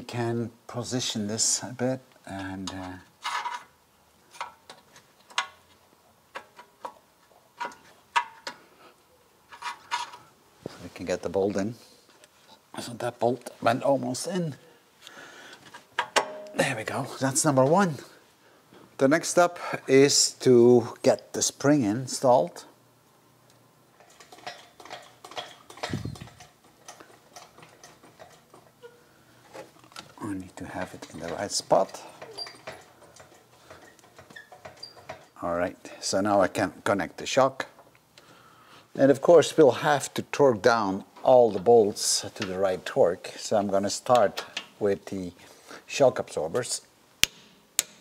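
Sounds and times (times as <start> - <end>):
metallic clicks and knocks: 24.0 - 35.4.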